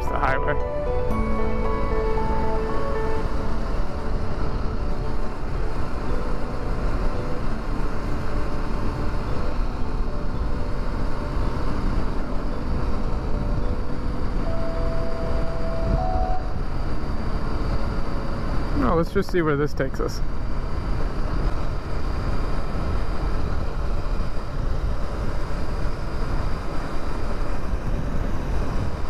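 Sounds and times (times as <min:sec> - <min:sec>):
motorcycle engine running: 0:01.1 - 0:19.0
wind rushing on microphone: 0:02.8 - 0:29.0.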